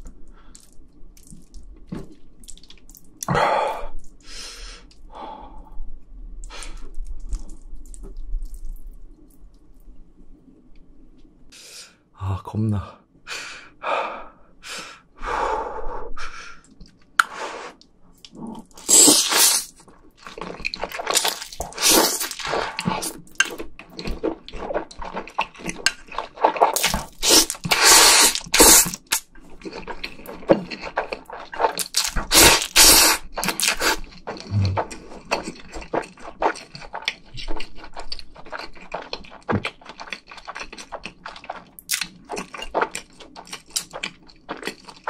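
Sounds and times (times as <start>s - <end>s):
wet chewing and smacking: 0.0s - 3.3s, 6.4s - 9.9s, 16.6s - 45.0s
slurping noodles: 17.2s - 19.8s, 20.9s - 23.2s, 26.3s - 37.0s.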